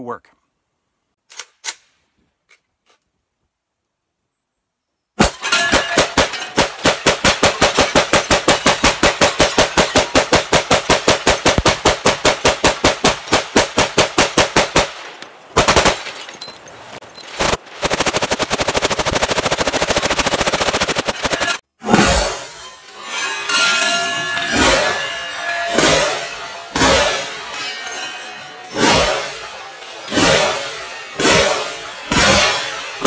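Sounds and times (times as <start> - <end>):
rapid gunshots: 5.2 - 15.0, 15.6 - 16.0, 17.4 - 21.6, 28.7 - 33.0.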